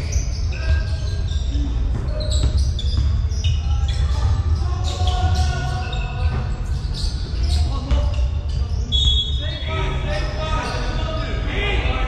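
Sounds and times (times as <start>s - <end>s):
sneakers squeaking: 0.0s - 11.5s
basketball bouncing: 0.7s - 8.7s.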